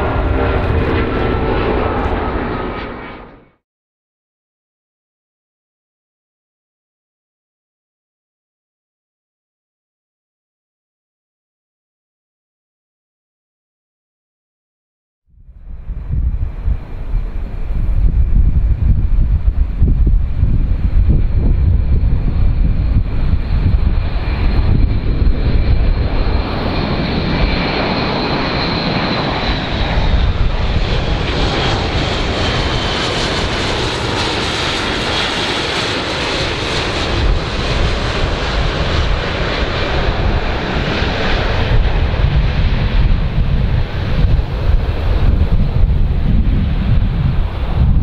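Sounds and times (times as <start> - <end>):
propeller aircraft flying past: 0.0 - 3.6, 15.4 - 48.0.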